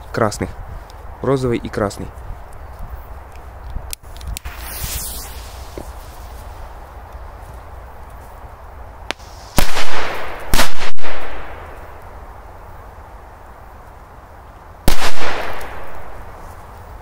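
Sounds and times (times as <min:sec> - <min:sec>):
firecracker bangs with echo: 0:09.1 - 0:11.7, 0:14.9 - 0:16.1.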